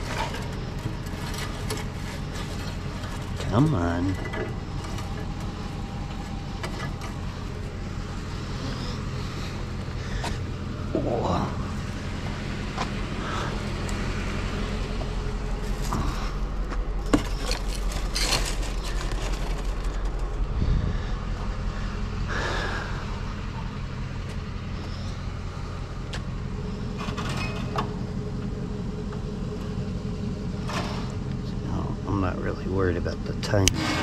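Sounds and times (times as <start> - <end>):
vehicle engine idling: 0.0 - 34.0.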